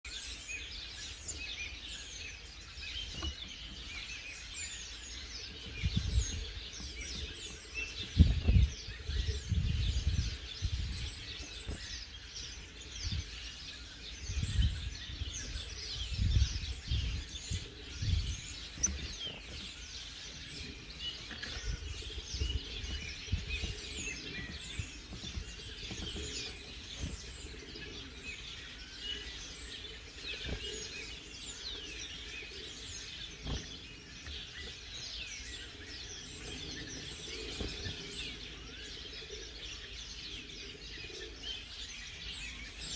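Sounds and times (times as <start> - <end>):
birds chirping: 0.0 - 42.9
low thumps on microphone: 5.5 - 12.0, 21.3 - 27.5.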